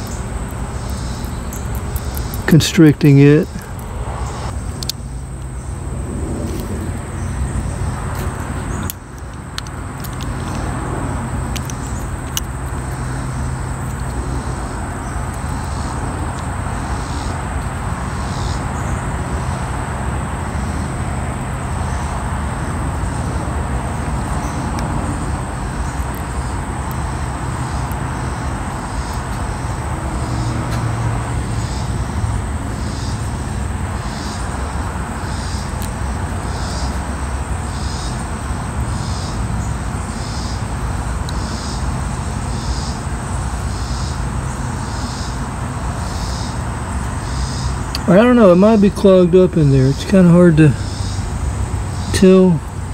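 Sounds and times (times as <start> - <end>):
low hum: 0.0 - 16.8.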